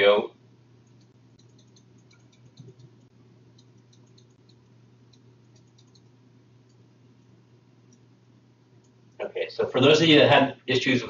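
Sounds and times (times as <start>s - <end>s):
low steady hum: 0.0s - 11.0s
computer mouse clicking: 0.8s - 6.8s.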